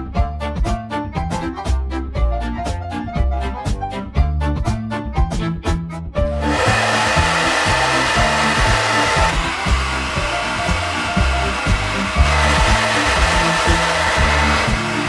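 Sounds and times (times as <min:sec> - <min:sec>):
background music with bass: 0:00.0 - 0:15.0
hair dryer blowing: 0:06.4 - 0:15.0.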